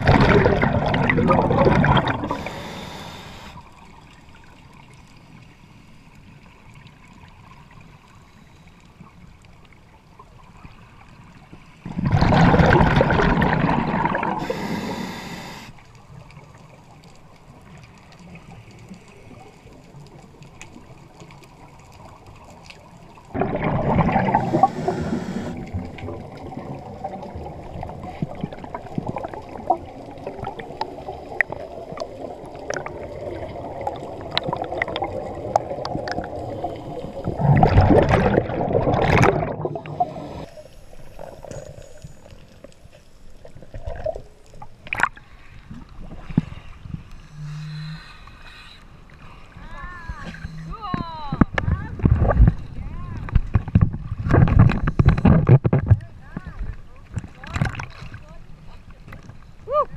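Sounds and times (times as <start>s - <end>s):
regulator bubbles exhaled: 0.0s - 3.7s, 11.8s - 15.7s, 23.3s - 42.3s
quiet bubbling and crackle: 0.0s - 59.9s.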